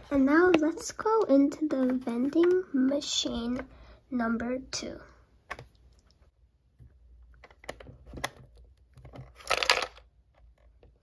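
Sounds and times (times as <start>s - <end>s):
plastic clatter: 7.4s - 10.9s.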